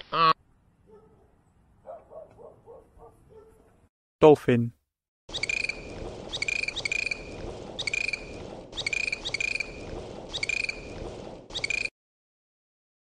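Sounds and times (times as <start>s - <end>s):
dolphin pulsed calls: 5.3s - 11.9s.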